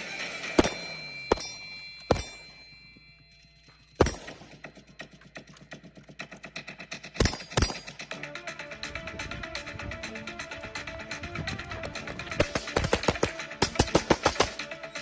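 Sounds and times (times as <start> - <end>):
rifle shots: 0.5 - 1.5, 4.0 - 4.8, 12.4 - 14.7
music with fast ticking beat: 4.0 - 15.0.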